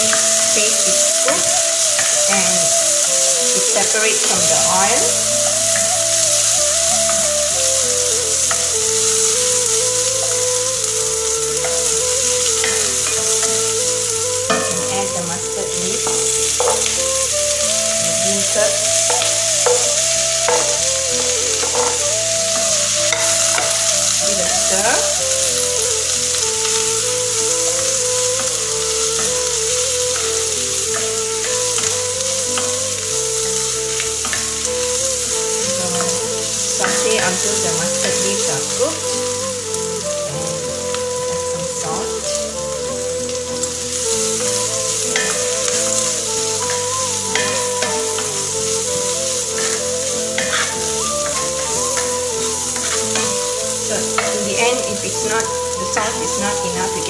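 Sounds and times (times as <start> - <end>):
soft background music: 0.0 - 57.0
vegetables sizzling in hot oil: 0.0 - 57.0
spatula scraping a pan: 11.6 - 24.9, 46.6 - 54.7.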